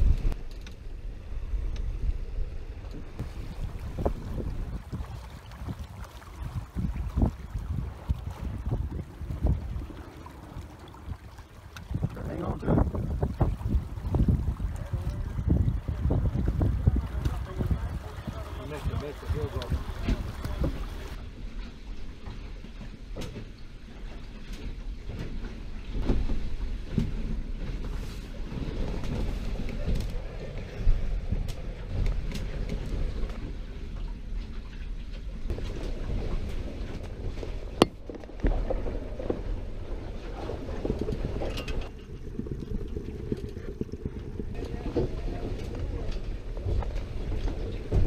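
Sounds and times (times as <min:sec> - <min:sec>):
dull low rumble: 0:00.0 - 0:48.0
water splashing along a hull: 0:02.3 - 0:48.0
wind buffeting the microphone: 0:02.9 - 0:21.2.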